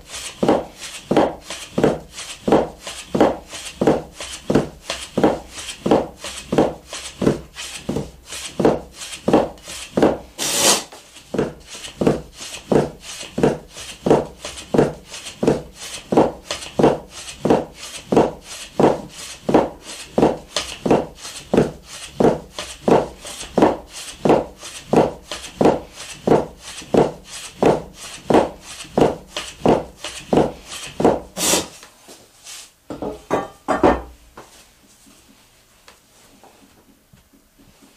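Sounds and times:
knife chopping dough on wood: 0:00.2 - 0:10.3, 0:11.3 - 0:31.3
knife scraping: 0:10.4 - 0:11.0.

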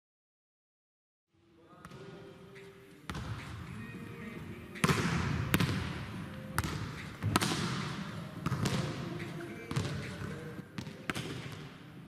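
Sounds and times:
volleyball smacks with echo: 0:04.8 - 0:06.0, 0:06.6 - 0:11.7.

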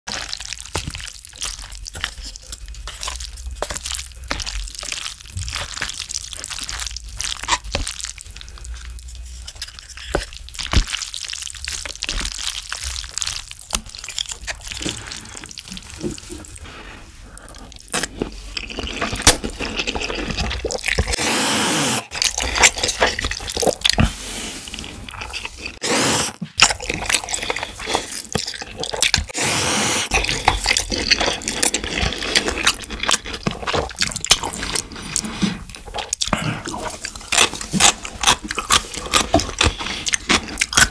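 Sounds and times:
wet chewing and smacking: 0:00.1 - 0:21.2, 0:22.1 - 0:25.8, 0:26.4 - 0:29.4, 0:30.0 - 0:40.9
noodle slurps: 0:13.2 - 0:40.9.

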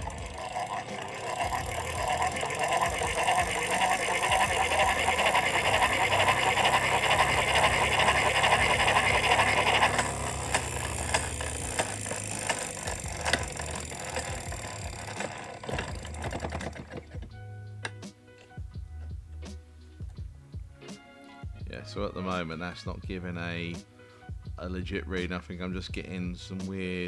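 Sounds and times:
hand-cranked machine whirring: 0:00.0 - 0:17.4
rotary dial clicks: 0:00.0 - 0:18.0.

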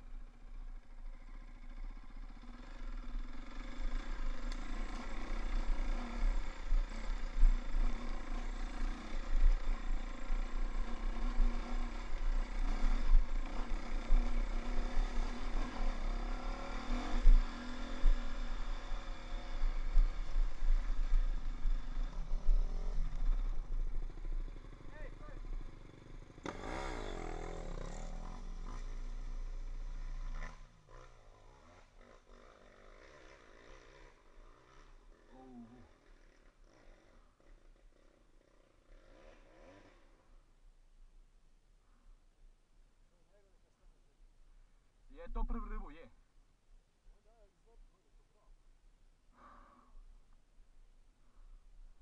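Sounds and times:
dirt bike engine revving: 0:01.1 - 0:40.4.

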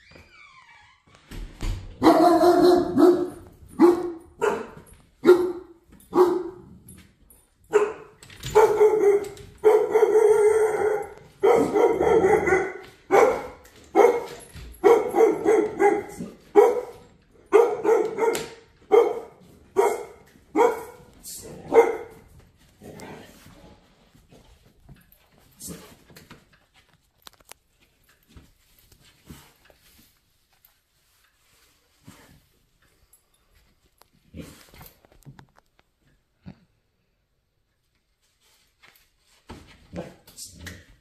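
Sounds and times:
dog barking: 0:02.0 - 0:06.7, 0:07.7 - 0:22.2.

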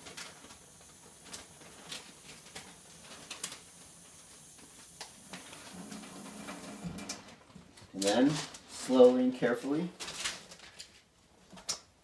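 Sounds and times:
tap water running: 0:00.0 - 0:08.2.

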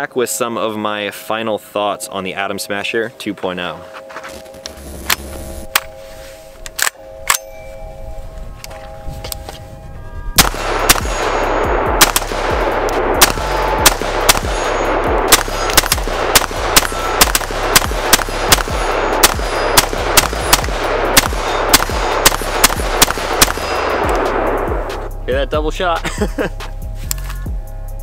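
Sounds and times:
rifle shots: 0:10.4 - 0:25.0.

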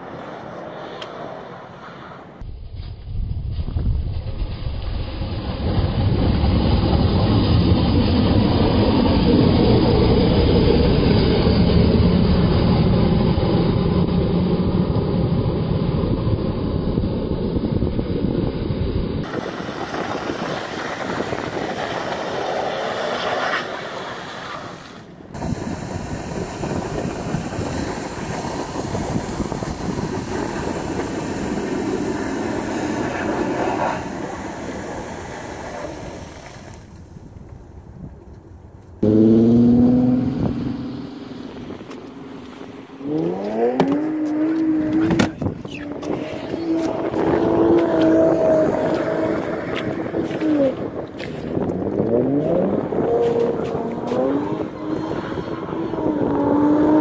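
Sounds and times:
car engine rumbling: 0:00.0 - 0:57.0
tyres spinning on snow: 0:19.2 - 0:37.0, 0:39.0 - 0:57.0.

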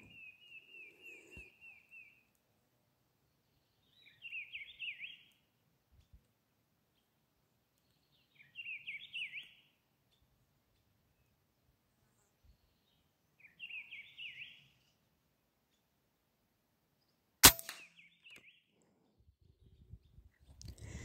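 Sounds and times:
bird chirping: 0:00.0 - 0:02.3, 0:03.3 - 0:06.2, 0:07.8 - 0:11.4, 0:12.4 - 0:16.0, 0:17.0 - 0:21.0
rifle shot: 0:17.4 - 0:17.9.

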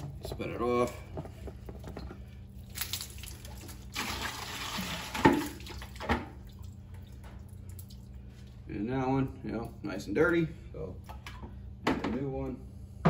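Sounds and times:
water sloshing and splashing: 0:00.0 - 0:08.7.

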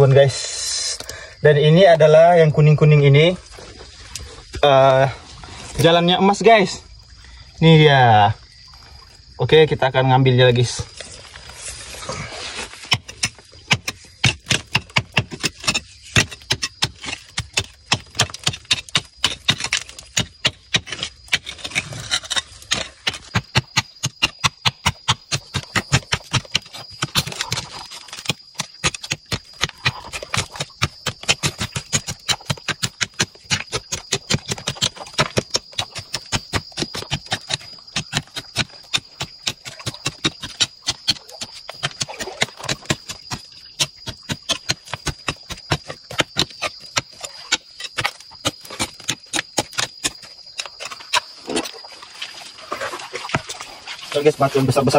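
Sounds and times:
hand tool chipping at rock: 0:12.7 - 0:51.8.

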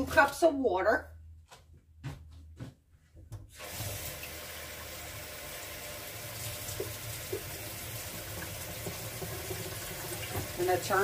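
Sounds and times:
tap water running into container: 0:03.5 - 0:11.0.

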